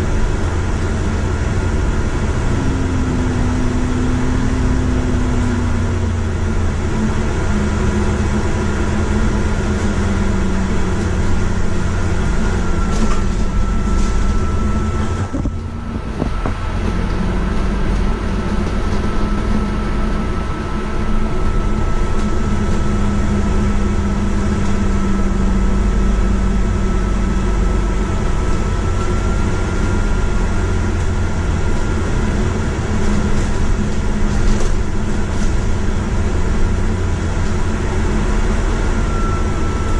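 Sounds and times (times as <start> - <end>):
bus engine and road rumble: 0.0 - 39.9
thin high whine: 2.0 - 8.0.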